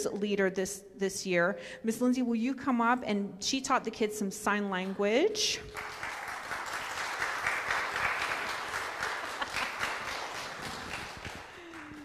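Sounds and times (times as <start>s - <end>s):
crowd clapping: 5.7s - 12.0s.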